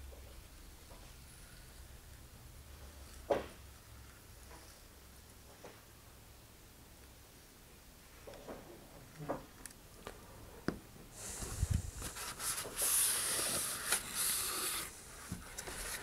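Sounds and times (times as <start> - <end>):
paper towel rubbing and crinkling: 11.3 - 16.0.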